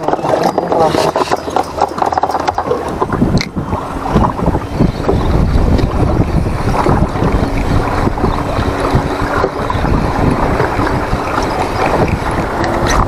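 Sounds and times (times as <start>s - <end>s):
water washing around boat: 0.0s - 13.0s
wind rumbling on microphone: 0.0s - 13.0s.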